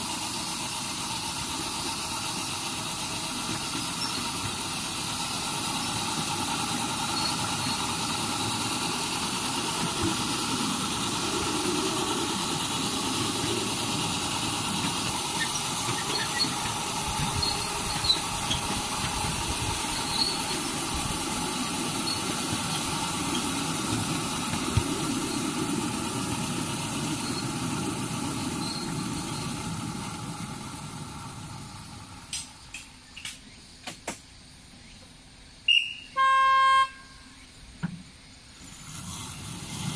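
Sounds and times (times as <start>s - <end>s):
train wheels rumbling on rail: 0.0s - 35.1s, 36.9s - 39.9s
wheel squeal: 3.1s - 29.8s, 35.7s - 37.5s.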